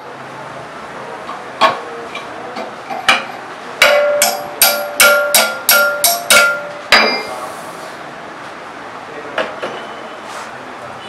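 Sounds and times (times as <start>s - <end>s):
hammer striking steel housing: 2.9s - 7.4s.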